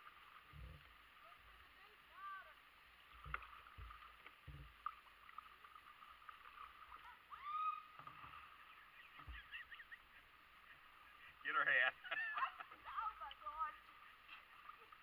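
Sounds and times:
light water sounds: 0.0 - 15.0
paddle knocking plastic hull: 3.1 - 5.0, 9.2 - 9.6.

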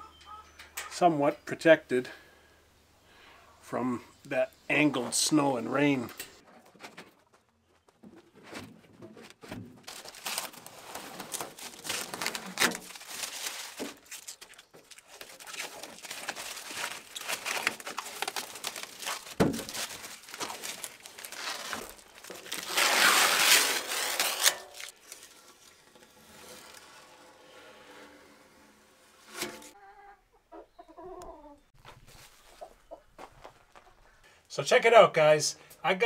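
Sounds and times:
plastic wrapping crinkling: 9.8 - 25.6.

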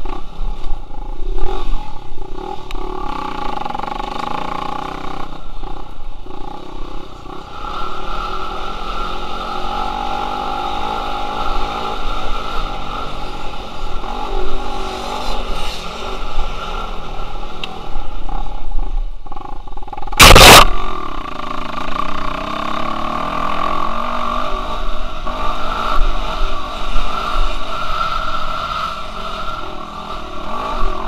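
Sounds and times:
dirt bike engine revving: 1.0 - 17.2, 19.4 - 31.0
loud sudden burst of noise: 20.1 - 20.8.

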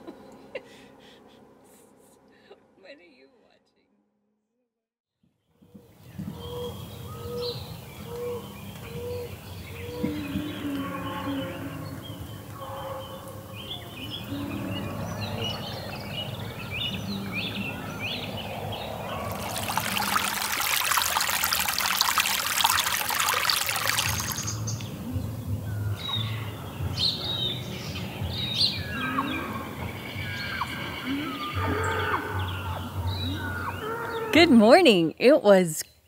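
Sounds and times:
small birds chirping and singing: 6.0 - 34.6
stream running over rocks: 19.0 - 24.8.

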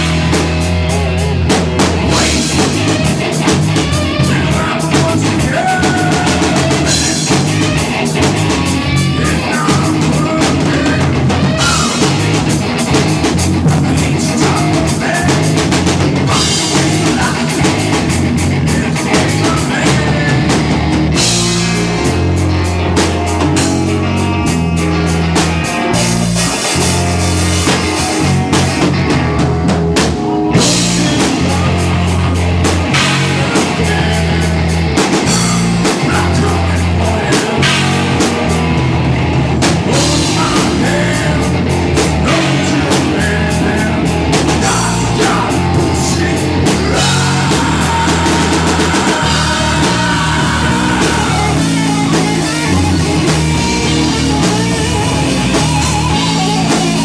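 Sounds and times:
bass line: 0.0 - 57.0
drum kit beat: 0.0 - 57.0
rock band playing: 0.0 - 57.0.

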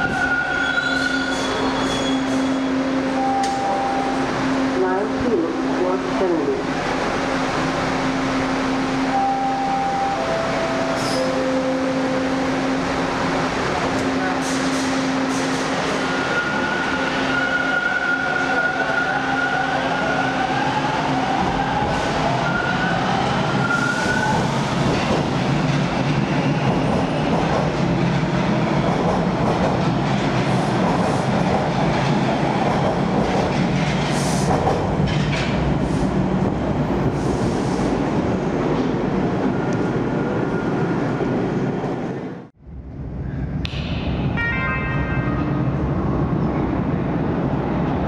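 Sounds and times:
high squeal: 0.0 - 2.7
subway train motor whine: 1.4 - 25.5
wheels rumbling and clattering on rails: 10.2 - 48.0.

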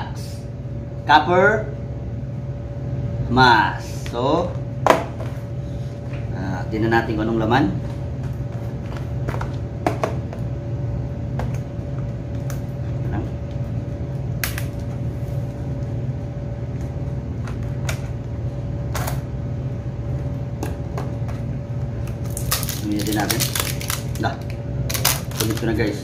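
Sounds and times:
steady low hum: 0.0 - 26.0
plastic rustling: 22.2 - 26.0.

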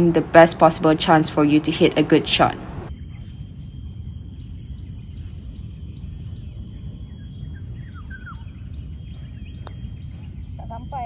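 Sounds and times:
insect chorus: 0.0 - 11.0
faint bird chirps: 4.7 - 11.0.

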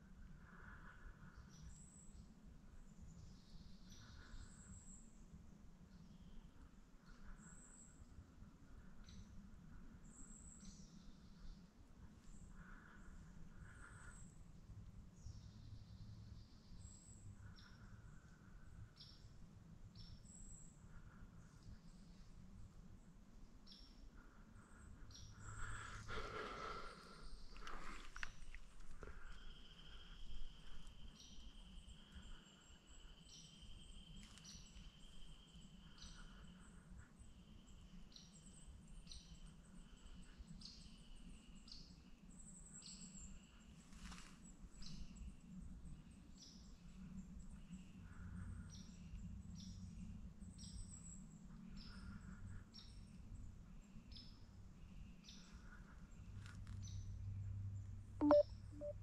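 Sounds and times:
short high chirps: 58.2 - 59.0
thin steady high tone: 58.2 - 59.0.

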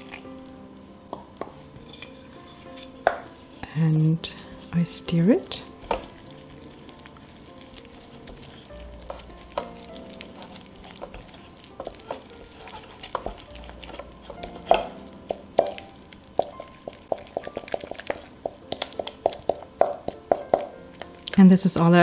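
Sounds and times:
wooden spoon knocking metal bowl: 3.0 - 3.3, 5.4 - 6.4, 8.3 - 21.4.

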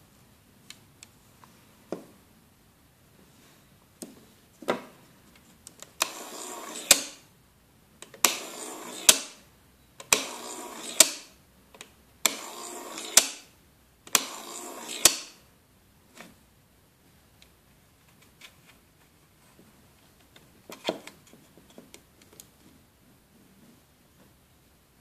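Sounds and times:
small motor whirring: 6.0 - 7.2, 10.2 - 11.3, 12.3 - 13.4, 14.2 - 15.4.

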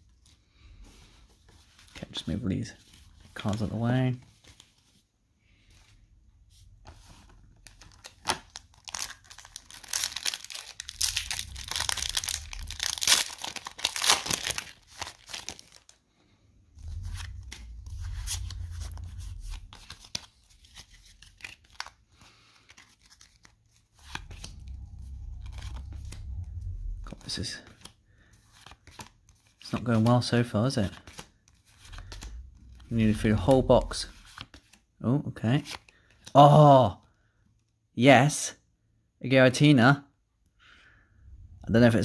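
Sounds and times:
foil wrapper tearing and crinkling: 7.9 - 16.0
cards being handled: 16.9 - 24.7, 27.1 - 34.8.

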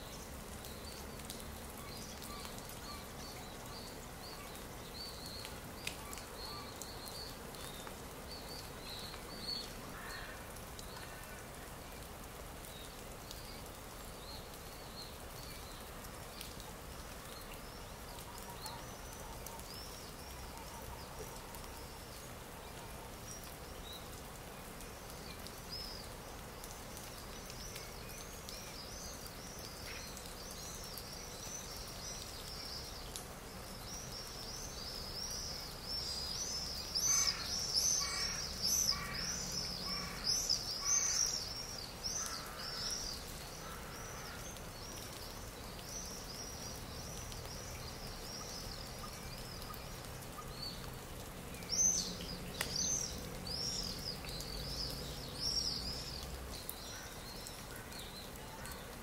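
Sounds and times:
small birds chirping: 0.0 - 59.0
steady outdoor hiss: 0.0 - 59.0.

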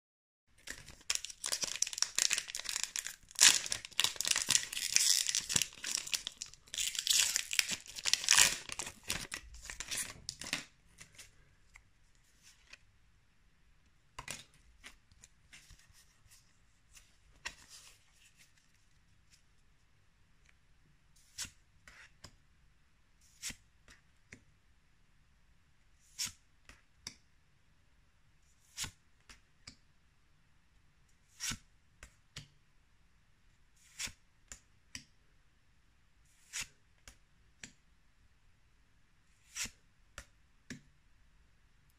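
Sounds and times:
foil wrapper tearing and crinkling: 0.7 - 10.5
cards flicking and sliding: 39.4 - 40.3.

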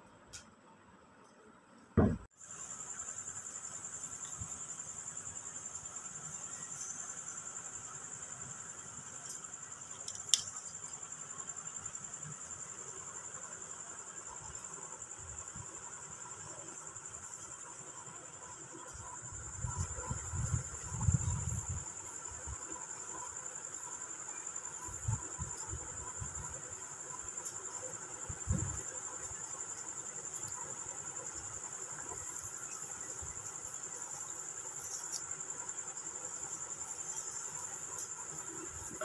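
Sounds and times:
cricket trill: 1.2 - 39.0.

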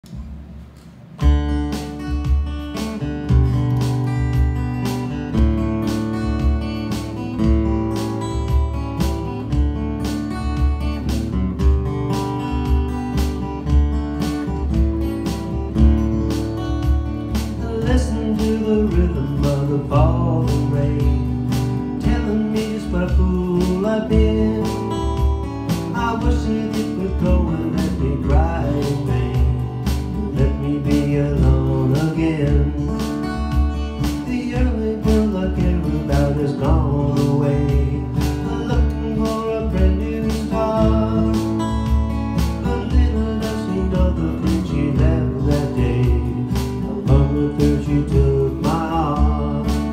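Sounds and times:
acoustic guitar strumming: 0.0 - 49.9
man singing: 17.3 - 49.9.

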